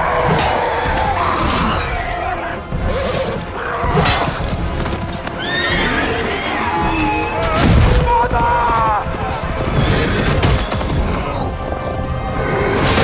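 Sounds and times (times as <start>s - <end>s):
horses whinnying: 0.0s - 11.5s
film music score: 0.0s - 13.0s
horses galloping: 4.4s - 12.7s.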